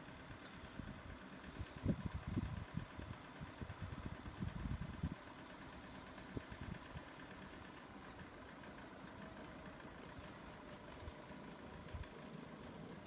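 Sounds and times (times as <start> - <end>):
vehicle engines idling: 0.0 - 13.0
wind buffeting microphone: 1.8 - 5.2.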